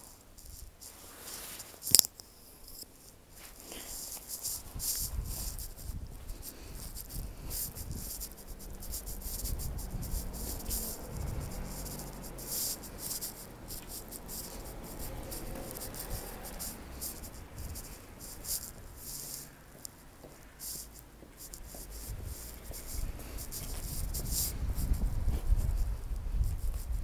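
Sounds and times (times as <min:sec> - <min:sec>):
microphone handling rustles: 0:00.1 - 0:27.0
wind rumble on microphone: 0:04.4 - 0:19.0, 0:21.4 - 0:27.0.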